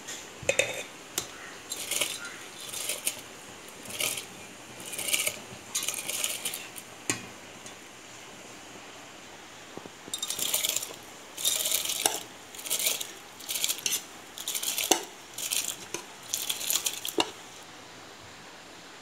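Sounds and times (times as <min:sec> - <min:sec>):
spoon clinking against metal bowl: 0:00.5 - 0:03.2, 0:03.8 - 0:06.8, 0:10.1 - 0:17.4
spoon scraping rice in bowl: 0:00.5 - 0:06.9, 0:10.1 - 0:17.4.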